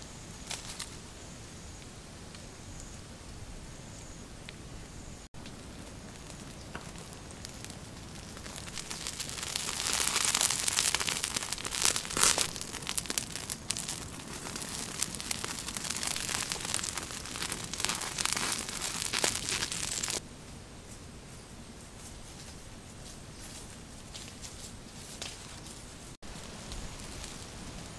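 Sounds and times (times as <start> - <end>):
meat sizzling in hot fat: 5.6 - 20.2.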